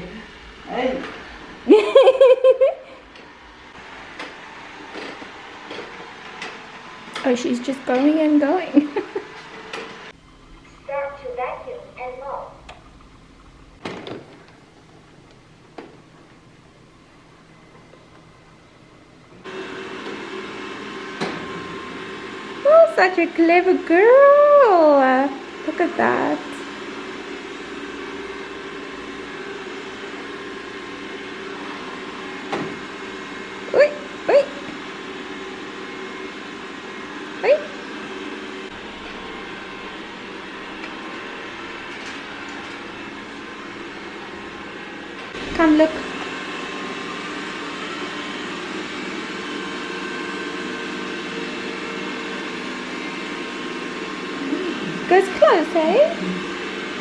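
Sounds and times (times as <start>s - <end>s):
robot vacuum motor hum: 0.0s - 15.4s, 19.4s - 57.0s
steady tones: 10.0s - 15.7s.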